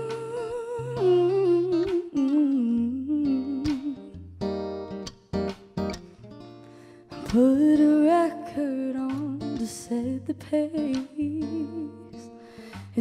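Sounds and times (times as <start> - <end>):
woman singing: 0.0 - 4.3, 7.1 - 13.0
strummed acoustic guitar: 0.0 - 13.0
bass guitar: 9.1 - 13.0
drums: 12.6 - 13.0.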